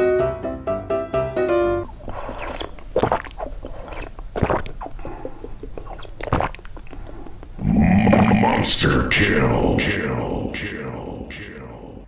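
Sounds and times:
piano phrase: 0.0 - 1.9
cat chewing and crunching food: 1.9 - 8.6.

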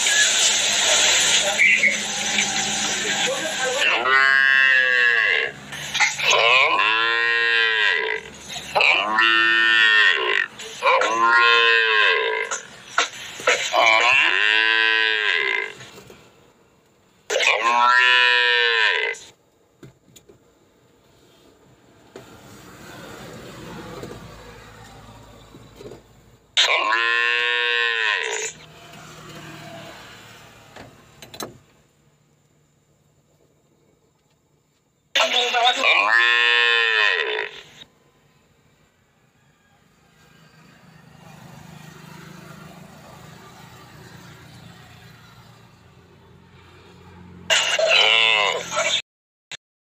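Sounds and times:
calf mooing: 6.3 - 12.6, 14.0 - 15.8, 17.6 - 19.2, 26.7 - 28.6, 36.0 - 37.7.

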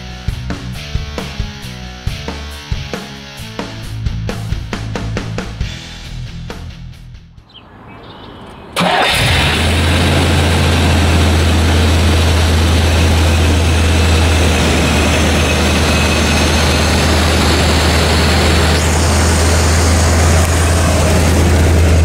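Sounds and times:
car engine starting and idling: 8.7 - 22.0.

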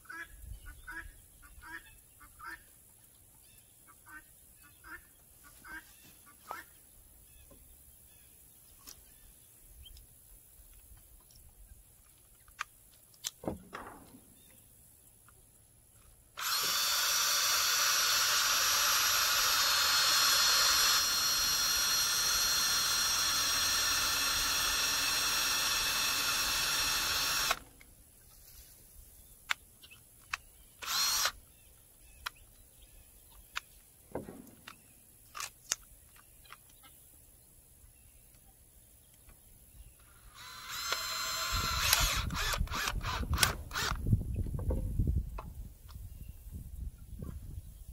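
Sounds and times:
cordless drill running: 16.4 - 27.7, 30.8 - 31.4, 40.2 - 44.0.

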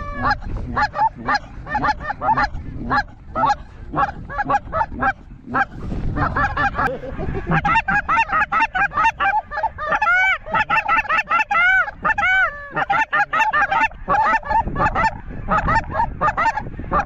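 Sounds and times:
low rumble: 0.0 - 10.3
wild geese honking: 0.0 - 17.0.

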